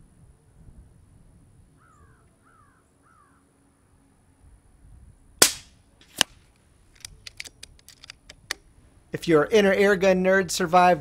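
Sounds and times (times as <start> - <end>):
bird calling: 1.8 - 3.5
air rifle shot: 5.4 - 6.4.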